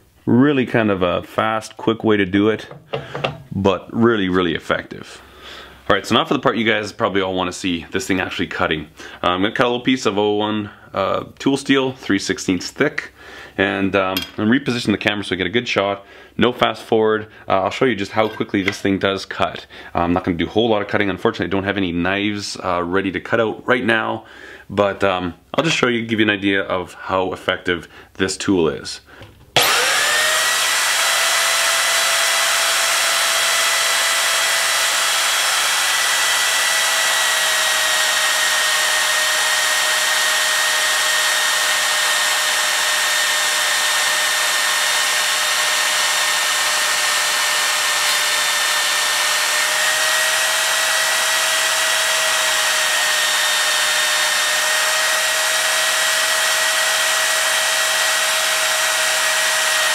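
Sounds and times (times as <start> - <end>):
bandsaw cutting steel: 29.6 - 59.9.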